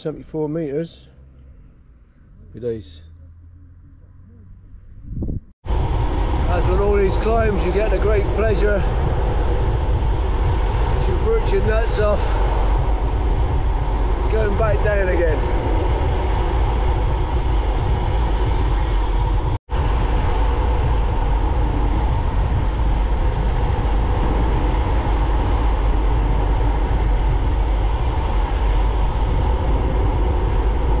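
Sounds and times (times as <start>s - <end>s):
bicycle tyre rumble: 1.2s - 31.0s
wind rushing over microphone: 4.2s - 31.0s.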